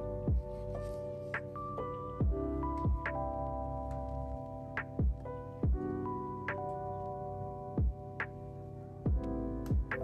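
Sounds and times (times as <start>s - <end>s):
sustained keyboard chords: 0.0s - 10.0s
deep kick drums: 9.1s - 9.9s.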